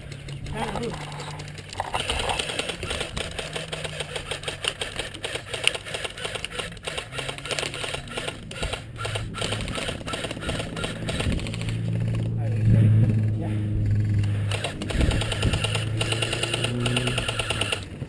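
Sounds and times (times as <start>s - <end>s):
airsoft rifles firing in bursts: 0.0s - 12.3s, 13.9s - 18.0s.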